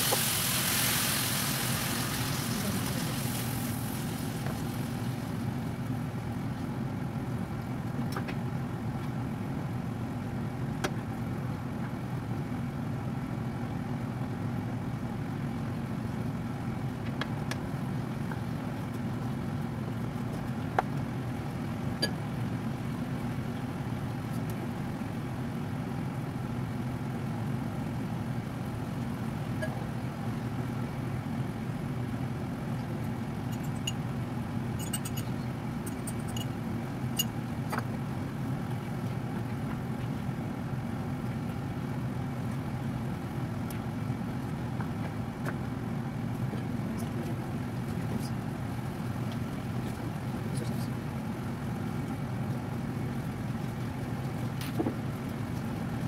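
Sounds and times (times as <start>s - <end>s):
meat frying pops and ticks: 0.0s - 5.7s
extractor fan humming: 0.0s - 56.0s.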